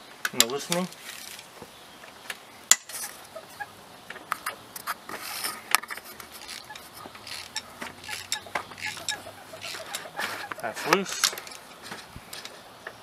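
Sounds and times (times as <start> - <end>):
hand ratchet clicking: 6.2 - 11.6.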